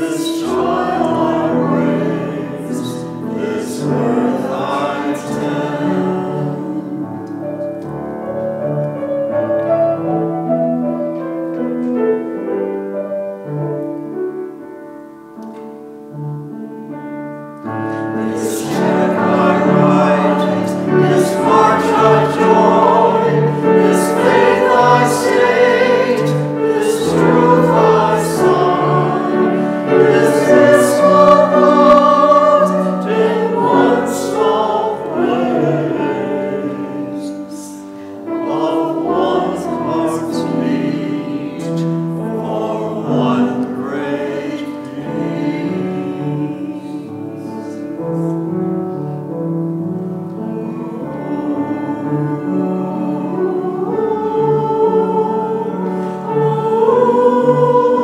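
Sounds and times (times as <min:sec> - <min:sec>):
choir singing: 0:00.0 - 0:14.6, 0:17.6 - 0:58.0
musical accompaniment: 0:00.0 - 0:58.0.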